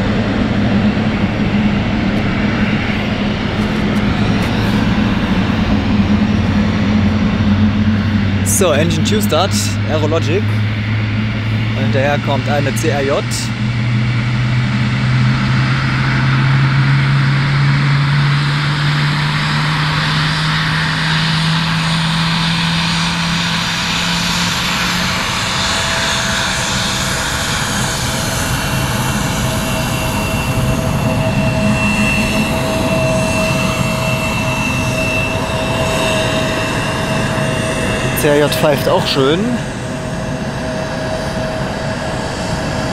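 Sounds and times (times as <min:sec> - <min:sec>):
jet engines roaring: 0:00.0 - 0:42.9
high jet engine whistle: 0:15.0 - 0:42.9.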